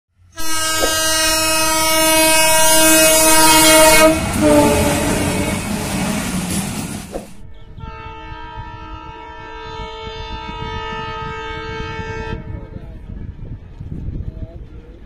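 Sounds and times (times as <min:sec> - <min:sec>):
moving train rumble: 0:00.2 - 0:15.0
train horn blast: 0:00.3 - 0:06.6, 0:07.6 - 0:12.8.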